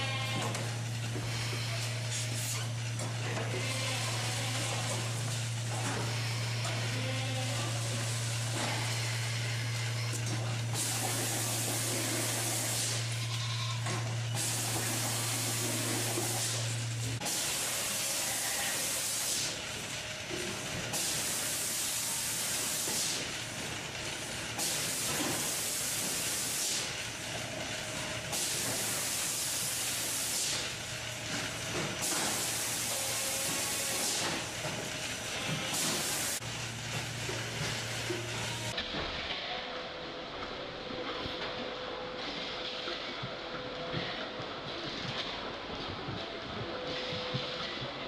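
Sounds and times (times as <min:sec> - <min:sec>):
machinery low hum: 0:00.0 - 0:48.0
air hiss: 0:20.9 - 0:23.2.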